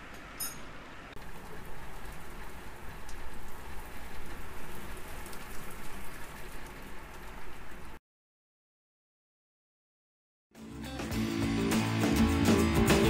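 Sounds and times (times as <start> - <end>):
rain falling on gravel and stone: 1.2 - 8.0.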